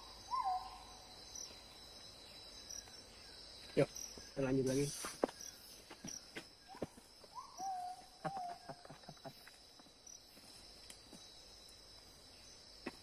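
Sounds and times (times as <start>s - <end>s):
forest insects droning: 0.0s - 13.0s.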